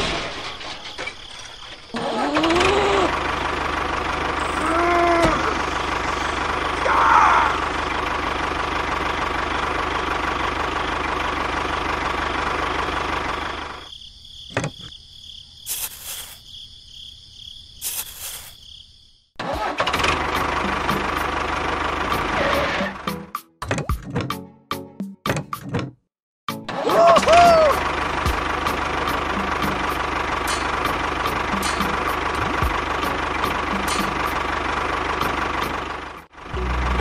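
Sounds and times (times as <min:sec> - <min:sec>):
tractor engine running: 0:00.0 - 0:13.9, 0:19.4 - 0:23.4, 0:26.6 - 0:37.0.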